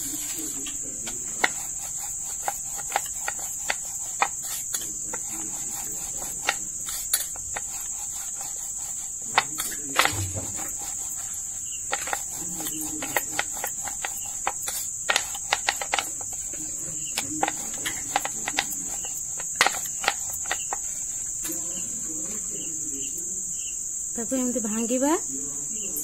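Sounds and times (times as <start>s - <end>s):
crickets chirring: 0.0s - 26.0s
rolling pin knocking on steel plate: 9.2s - 20.9s.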